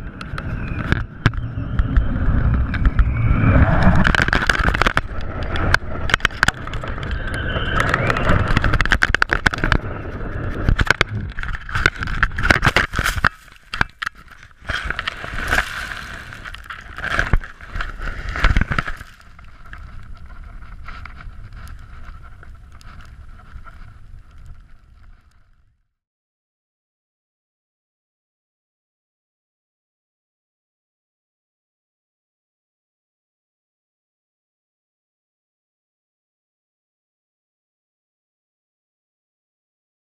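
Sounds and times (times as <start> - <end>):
camera rattling and knocking: 3.8 - 7.1, 7.7 - 24.0.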